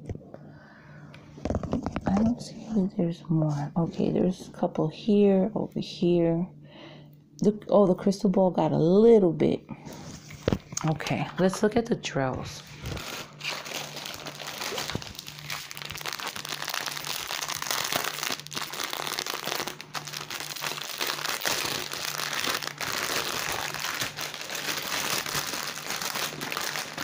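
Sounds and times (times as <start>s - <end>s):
plastic bags crinkling: 12.6s - 27.0s.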